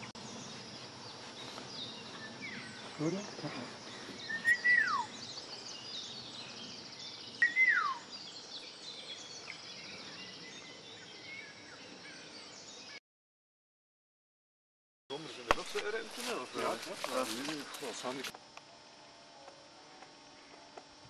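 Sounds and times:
small birds twittering: 0:00.0 - 0:13.0
bird whistle dropping in pitch: 0:04.4 - 0:05.1, 0:07.4 - 0:08.1.

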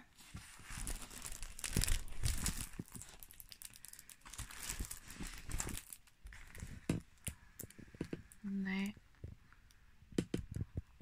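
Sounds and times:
plastic film crinkling: 0:00.2 - 0:08.4.

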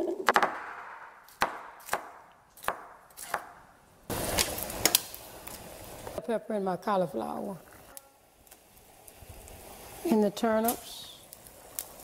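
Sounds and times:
knife chopping on wooden board: 0:01.3 - 0:03.6
stove hissing: 0:04.0 - 0:12.0.

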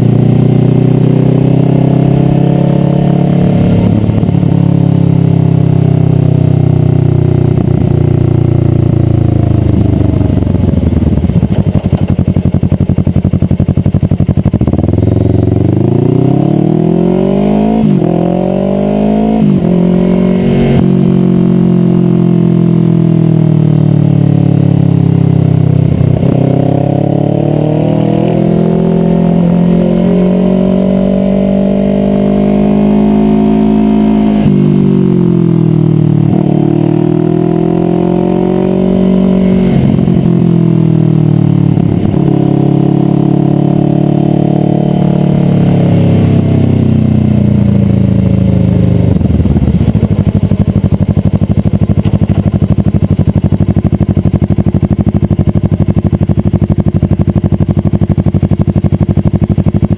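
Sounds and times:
motorcycle engine revving and idling: 0:00.0 - 0:59.9.

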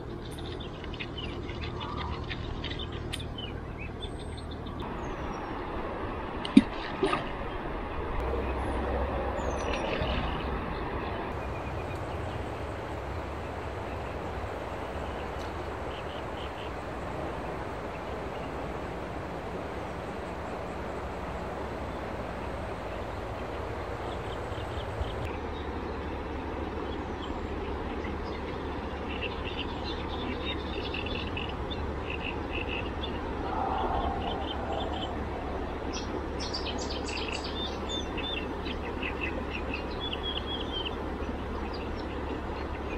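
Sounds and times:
river rushing: 0:32.9 - 0:42.9
low rumble: 0:33.0 - 0:36.8.

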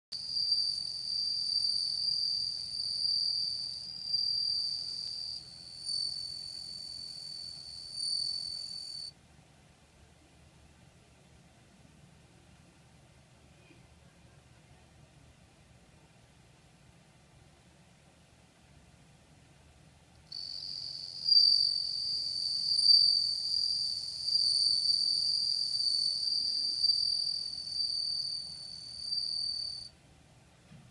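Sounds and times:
cricket ringing song: 0:00.2 - 0:09.1, 0:20.3 - 0:29.9.

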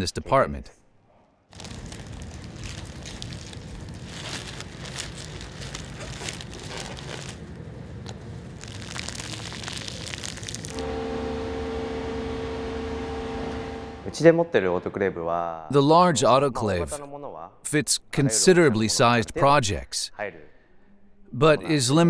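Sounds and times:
plastic film crinkling: 0:01.5 - 0:10.8
machine hum with held tones: 0:10.7 - 0:14.2.

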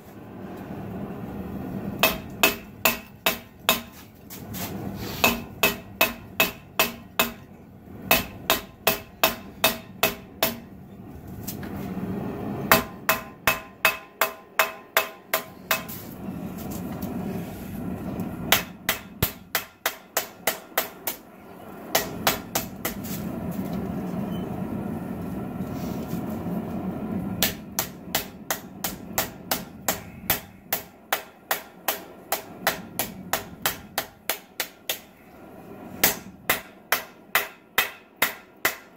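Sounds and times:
low rushing noise: 0:00.0 - 0:13.2, 0:15.6 - 0:19.6, 0:21.0 - 0:36.9
hammer striking blade on anvil: 0:05.2 - 0:07.4, 0:36.0 - 0:38.9.

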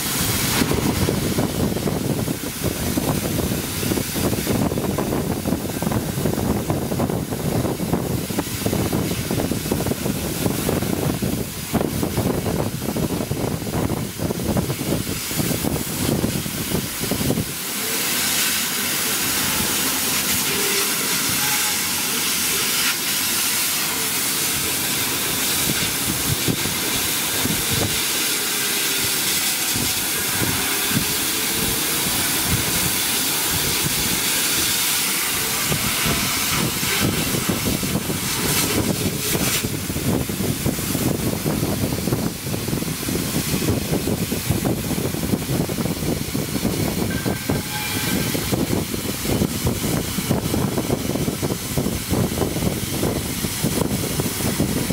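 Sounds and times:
air assist hissing: 0:00.0 - 0:54.9.

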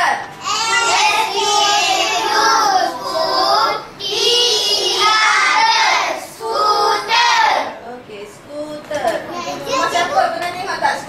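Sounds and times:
children chanting: 0:00.4 - 0:07.7.

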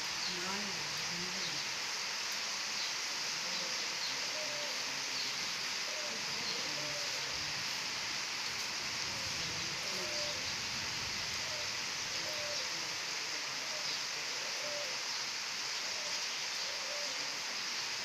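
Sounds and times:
rain falling on stone paving: 0:00.0 - 0:18.0.

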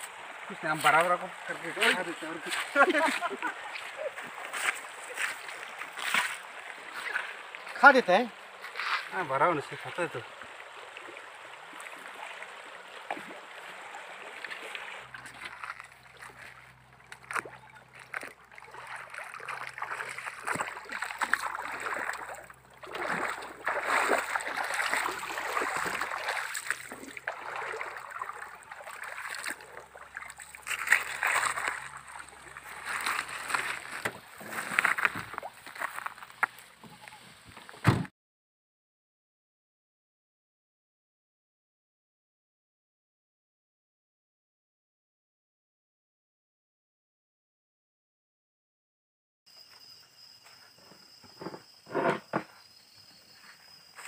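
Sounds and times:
stream water splashing: 0:00.0 - 0:38.0.

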